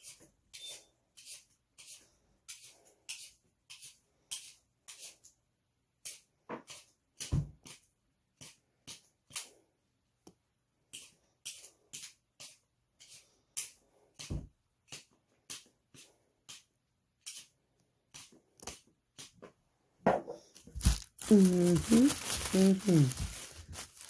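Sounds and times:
peeler scraping potato skin: 0.0 - 5.4.

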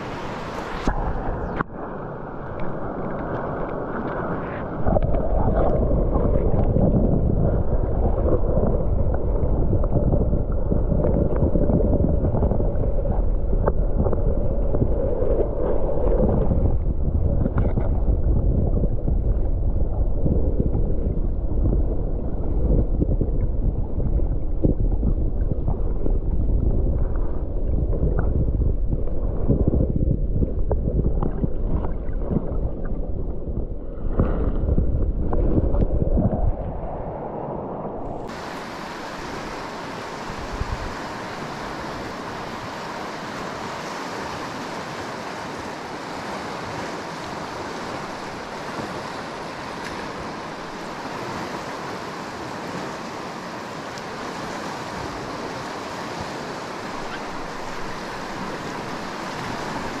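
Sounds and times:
river water rushing: 0.0 - 6.4, 37.1 - 60.0
wind rumble on microphone: 0.0 - 60.0.

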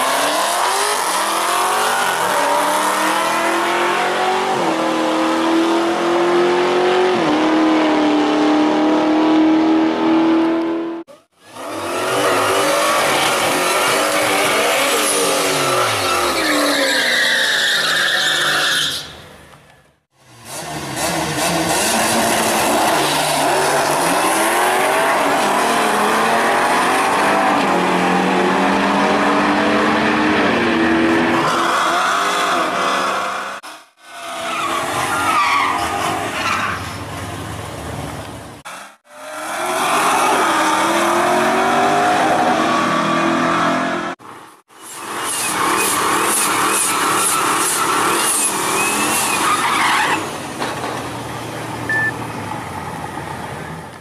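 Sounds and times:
engines revving hard: 0.0 - 16.7, 20.3 - 35.2, 38.6 - 44.2
tyres squealing: 13.0 - 19.2.

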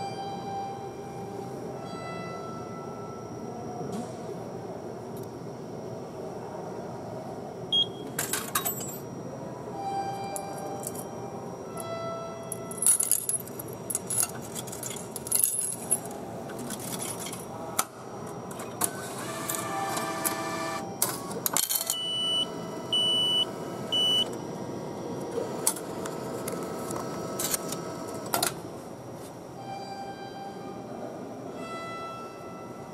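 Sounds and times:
machine beeps: 7.7 - 8.1, 18.5 - 24.4
coins clinking into machine: 8.2 - 9.0, 12.6 - 17.5, 18.6 - 22.2.

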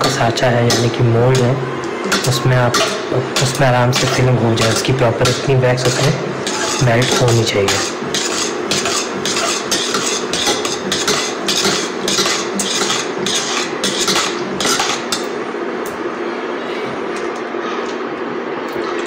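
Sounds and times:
steady hum: 0.0 - 19.0
metal spoon scraping saucepan: 0.7 - 15.2.

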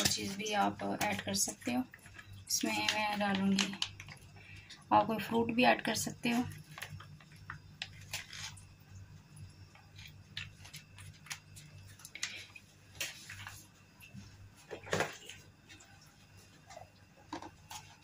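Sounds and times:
plastic packet crinkling: 0.0 - 4.4, 6.3 - 8.6, 9.8 - 13.5
low steady hum: 0.0 - 18.0.

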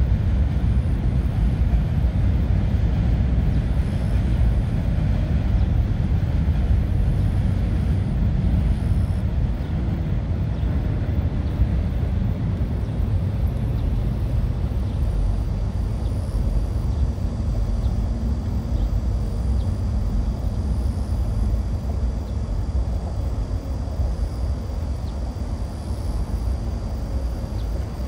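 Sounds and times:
distant subway train: 0.0 - 28.0
distant traffic rumble on bridge: 0.0 - 28.0.

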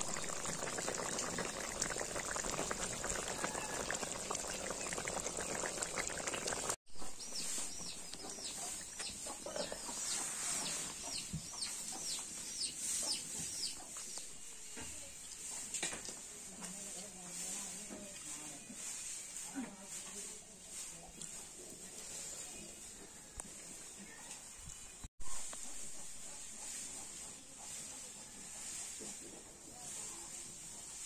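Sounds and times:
curry bubbling and crackling: 0.0 - 6.8.

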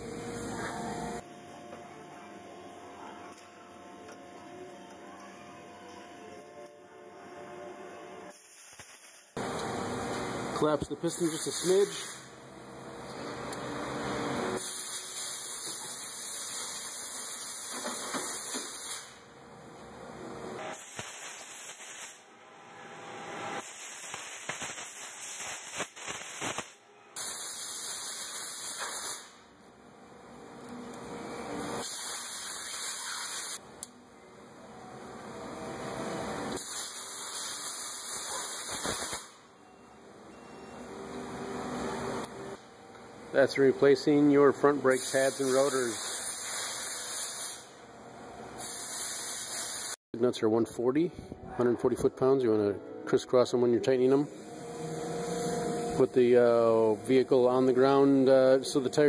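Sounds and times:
steady hiss: 10.9 - 12.3.

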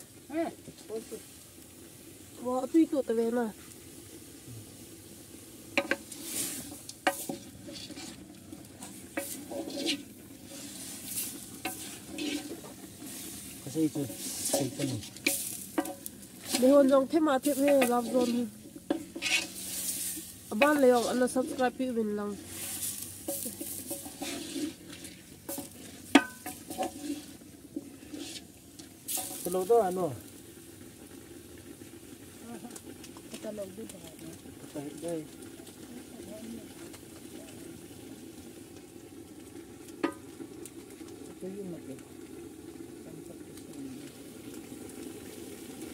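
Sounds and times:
meat sizzling in a metal pot: 0.0 - 45.9
ladle scraping through meat: 5.8 - 21.8, 22.4 - 29.4.

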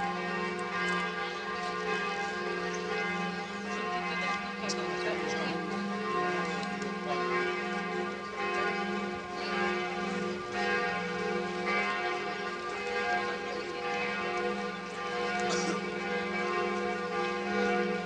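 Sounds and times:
church bells ringing: 0.0 - 18.0.

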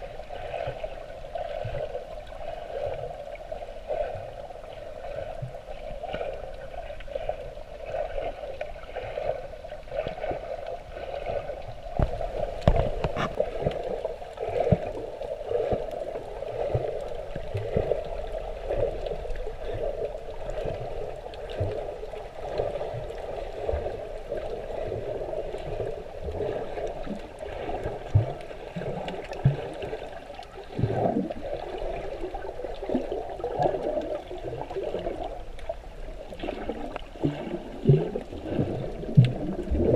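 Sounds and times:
muffled underwater rushing: 0.0 - 39.9
underwater knocks and thumps: 11.3 - 16.0, 24.8 - 31.6, 36.4 - 39.9.

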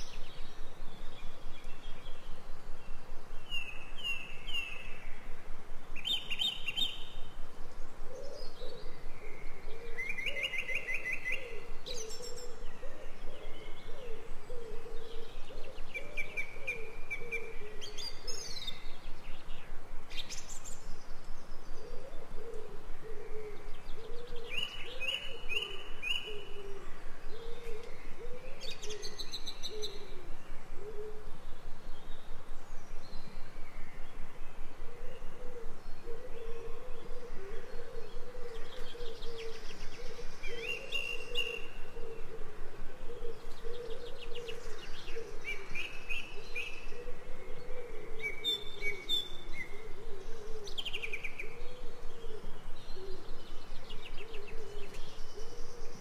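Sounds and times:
songbirds singing: 0.0 - 56.0
steady background hiss: 0.0 - 56.0
low wavering bird call: 34.9 - 53.4.

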